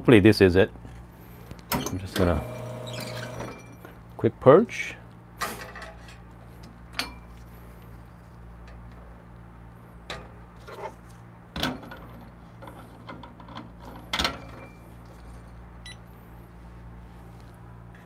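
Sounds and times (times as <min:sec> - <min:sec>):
steady low hum: 0:00.0 - 0:13.1.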